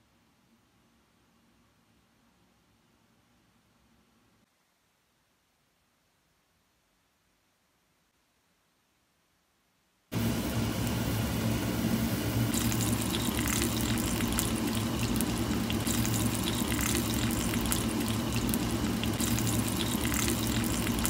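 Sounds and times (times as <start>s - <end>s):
dumplings sizzling in hot oil: 10.1s - 21.0s.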